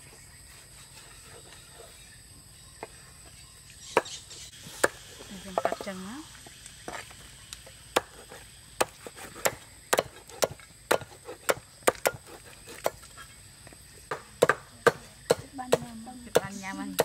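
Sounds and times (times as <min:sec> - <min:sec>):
knife chopping on wooden block: 0:08.0 - 0:13.0.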